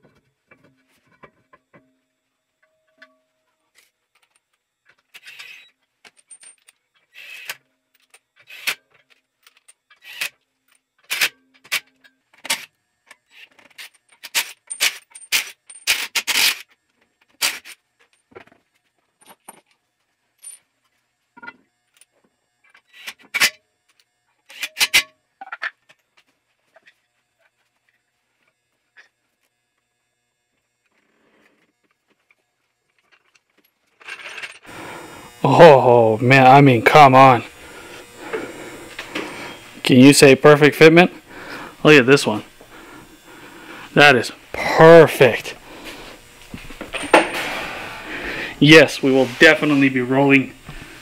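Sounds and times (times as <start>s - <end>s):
metallic clinks of bolts and wrench: 33.0s - 34.7s.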